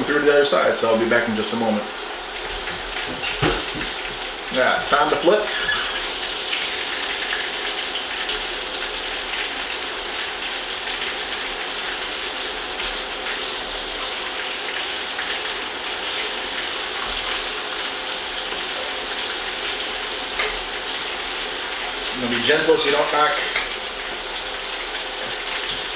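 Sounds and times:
fish sizzling in oil: 0.0 - 25.9.

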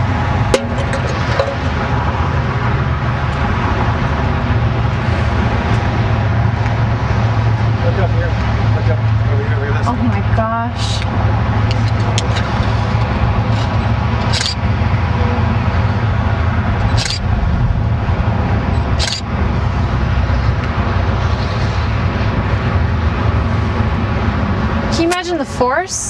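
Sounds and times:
wind buffeting microphone: 13.0 - 23.4
sharp clicks: 14.2 - 14.6, 16.9 - 17.3, 19.0 - 19.2.

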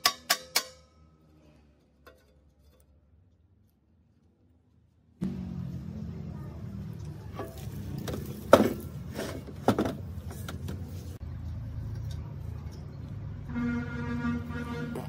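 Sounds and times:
sharp ringing metal knocks: 0.0 - 1.2.

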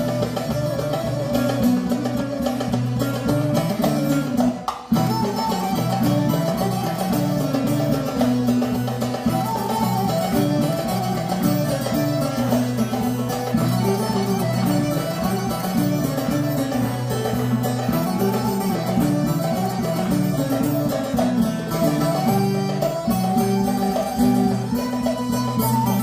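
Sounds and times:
folk dance music with plucked lutes: 0.0 - 26.0.

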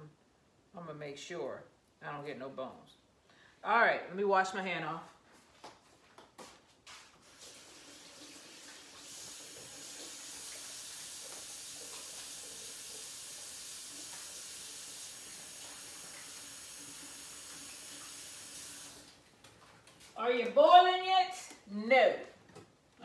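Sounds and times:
faucet water running into sink: 7.2 - 19.2.

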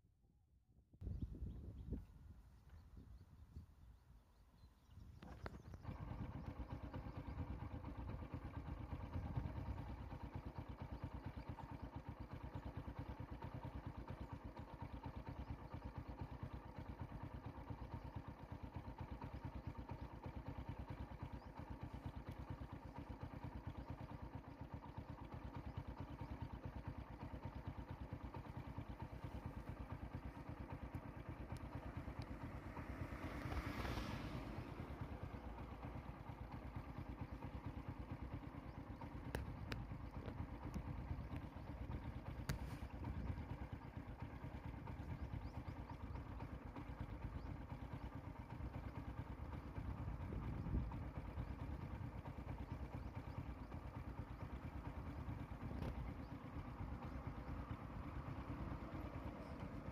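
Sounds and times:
vehicle engine idling: 1.0 - 59.9
passing vehicle rushing: 32.7 - 34.9.

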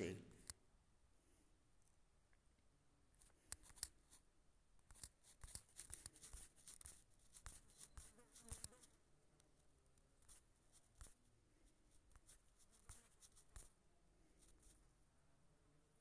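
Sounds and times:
faint clicks and rustles: 4.8 - 11.2.

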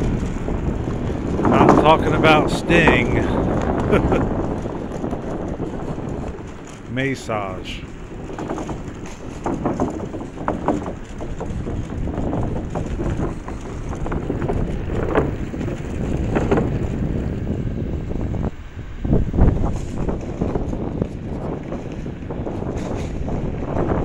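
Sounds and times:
electric scooter rolling: 0.0 - 24.0
wind on microphone: 0.0 - 24.0.

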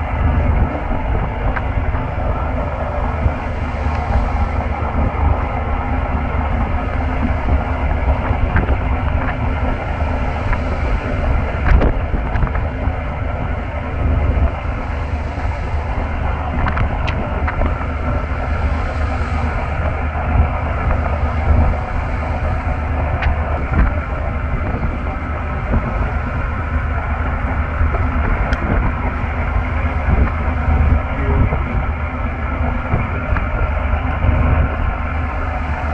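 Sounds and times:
boat engine running: 0.0 - 35.9
wind buffeting microphone: 0.0 - 35.9.

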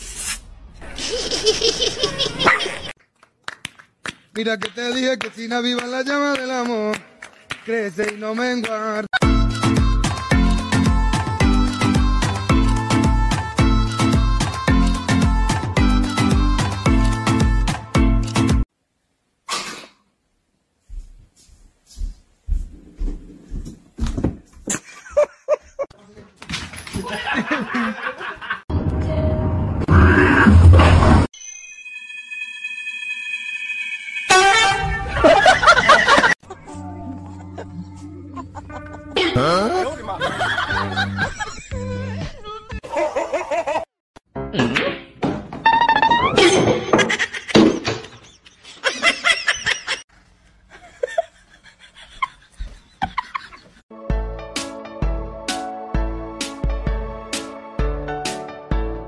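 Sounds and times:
people laughing: 1.0 - 2.9, 27.0 - 28.7, 35.2 - 43.9, 46.9 - 50.0
high-pitched squeaks: 31.3 - 35.5, 45.6 - 46.9.

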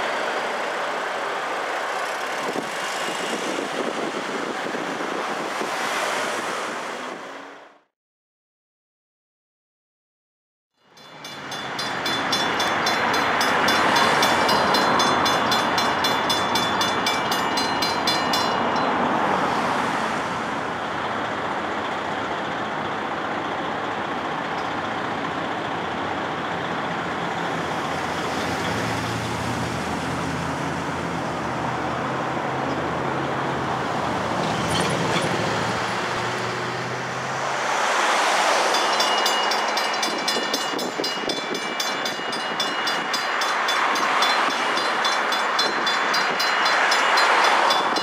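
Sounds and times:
road traffic with engines humming: 0.0 - 7.9, 10.8 - 48.0
crossing bells ringing rapidly: 10.8 - 19.5, 38.5 - 48.0.

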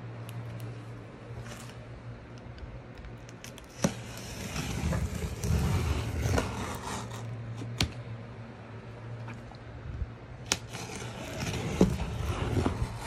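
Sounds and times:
cardboard scraping and crackling: 3.4 - 8.0, 10.4 - 13.0.

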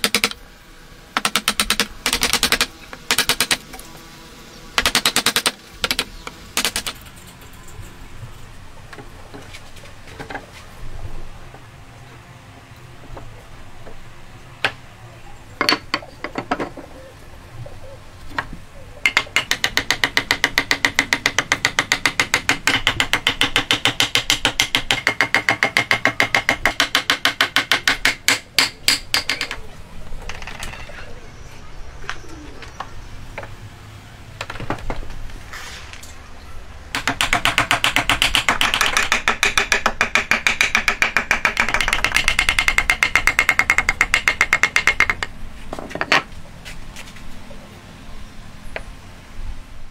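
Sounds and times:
wooden mallet tapping wood: 18.4 - 29.6, 36.9 - 45.3.

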